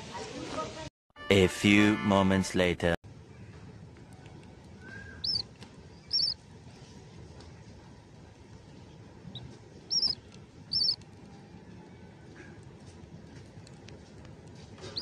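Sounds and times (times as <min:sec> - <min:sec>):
parrots chirping: 0:05.2 - 0:05.4, 0:06.0 - 0:06.4, 0:09.3 - 0:11.0.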